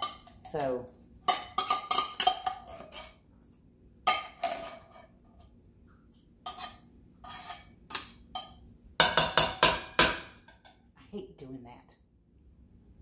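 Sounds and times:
metal spoon scraping tin can: 0:00.0 - 0:03.2, 0:06.5 - 0:08.0.

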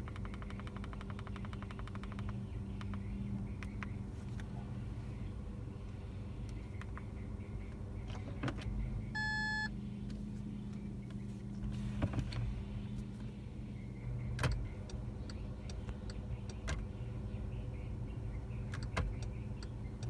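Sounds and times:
sharp clicks: 0:00.0 - 0:04.0
electronic beep: 0:09.2 - 0:09.7.

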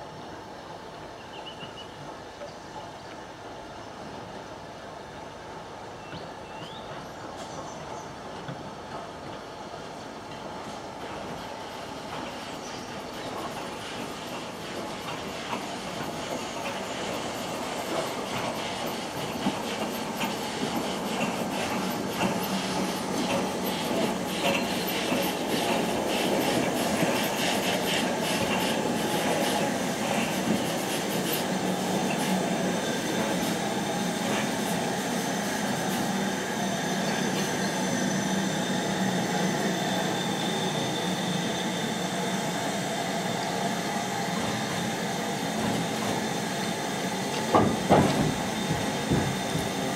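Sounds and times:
train wheels clicking over rail joints: 0:06.1 - 0:38.8, 0:44.0 - 0:49.9.

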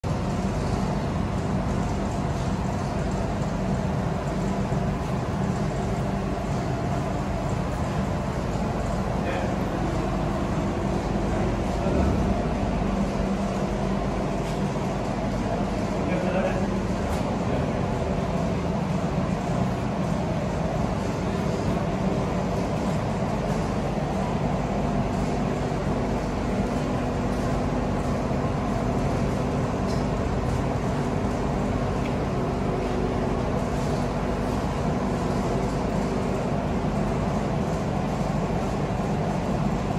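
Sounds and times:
machine drone with low rumble: 0:00.0 - 0:39.9.

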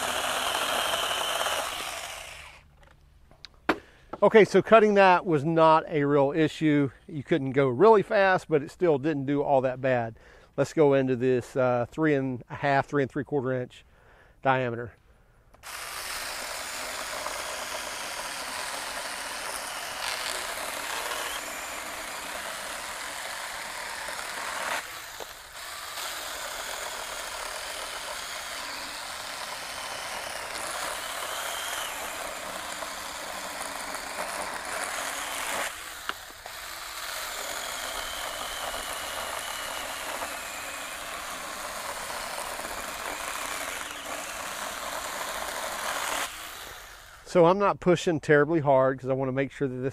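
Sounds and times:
mini chainsaw cutting log: 0:00.0 - 0:02.7, 0:15.5 - 0:47.4.

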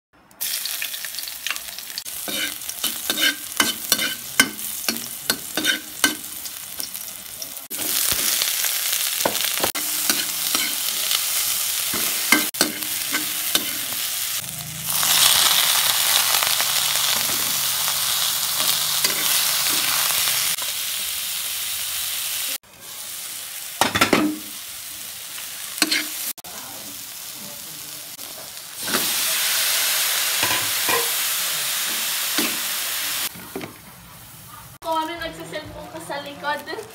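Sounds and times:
food sizzling in oil: 0:00.4 - 0:36.9
spatula clinking and scraping pan: 0:02.2 - 0:07.0, 0:09.3 - 0:10.9, 0:11.9 - 0:14.0, 0:18.6 - 0:20.0, 0:25.8 - 0:26.2, 0:30.4 - 0:31.2.

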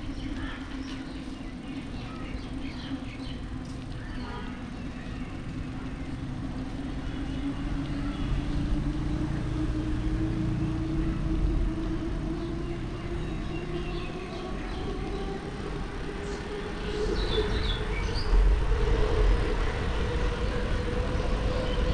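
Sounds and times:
wind rumble on microphone: 0:00.0 - 0:21.9
hum rising in pitch: 0:05.2 - 0:21.9.

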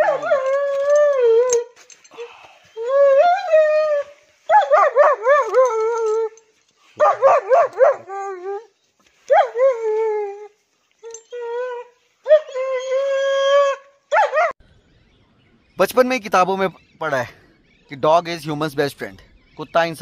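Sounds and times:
dog howling: 0:00.0 - 0:01.8
dog yelping cries: 0:00.0 - 0:01.8, 0:03.0 - 0:06.4, 0:07.0 - 0:08.4, 0:09.3 - 0:10.0, 0:11.1 - 0:14.6.

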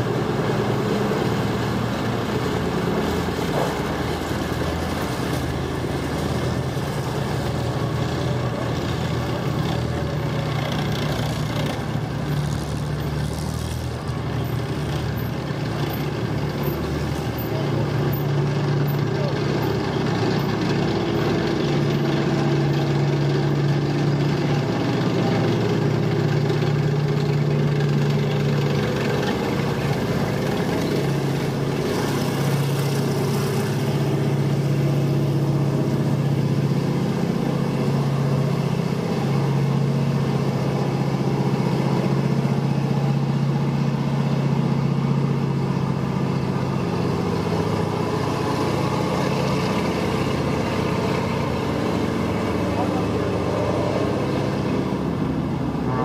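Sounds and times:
vehicle engines driving past: 0:00.0 - 0:56.0.

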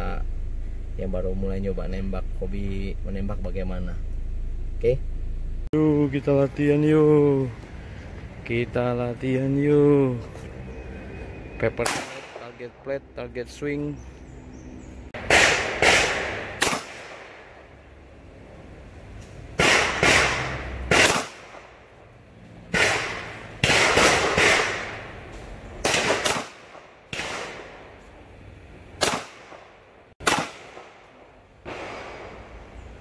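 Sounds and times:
pistol shots with echo: 0:11.8 - 0:12.6, 0:15.2 - 0:17.6, 0:19.6 - 0:21.8, 0:22.7 - 0:25.1, 0:25.8 - 0:27.9, 0:29.0 - 0:32.6.

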